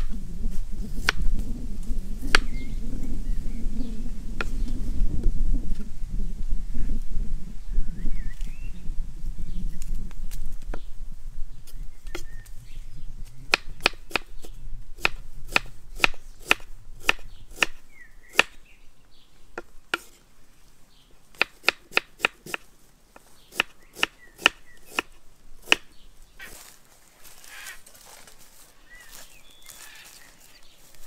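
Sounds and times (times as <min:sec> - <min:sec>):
low rumble: 0:00.1 - 0:12.0.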